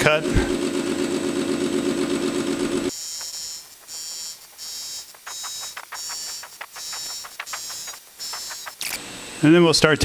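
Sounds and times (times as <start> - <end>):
lathe fast-pulsing hum: 0.5 - 9.8
high-pitched cutting whine: 2.8 - 10.0
ticks: 4.5 - 9.0.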